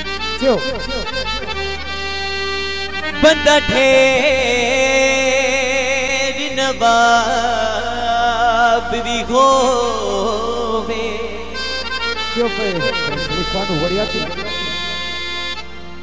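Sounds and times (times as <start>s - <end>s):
harmonium drone: 0.0s - 16.0s
man singing long notes: 2.9s - 15.3s.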